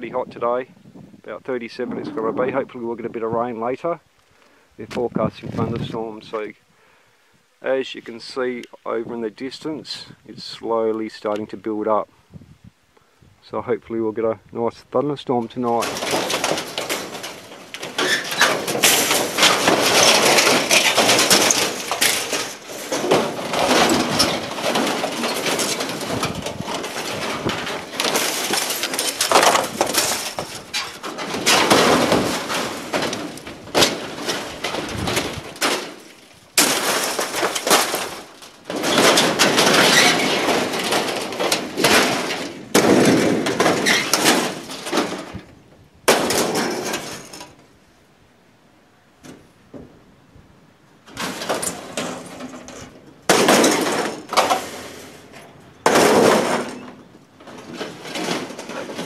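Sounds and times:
aluminium sheets clattering: 15.4 - 45.5, 46.1 - 47.6, 51.0 - 59.0.

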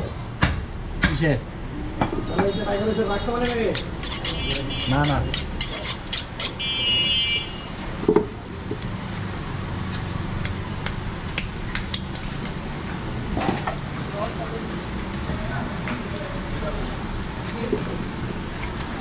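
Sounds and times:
background traffic rumble: 0.0 - 19.0.

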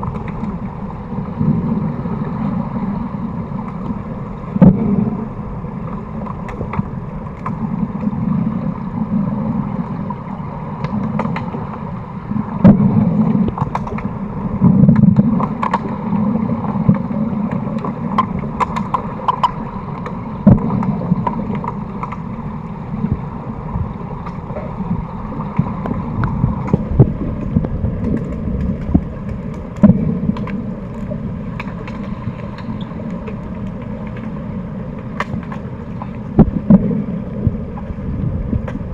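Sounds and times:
muffled underwater rumble and hiss: 0.0 - 38.9
sharp clicks and knocks: 13.5 - 14.1.

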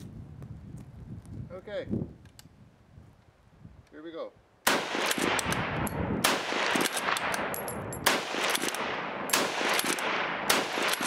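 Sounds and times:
rifle shots echoing: 4.6 - 11.0
rifle bolt clicks: 5.0 - 6.0, 6.6 - 10.1.

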